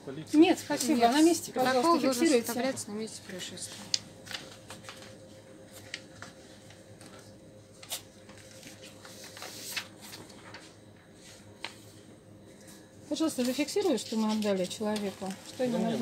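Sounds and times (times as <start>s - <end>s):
faint steady hum: 0.0s - 16.0s
paper pages rustling: 3.7s - 11.9s, 13.4s - 15.7s.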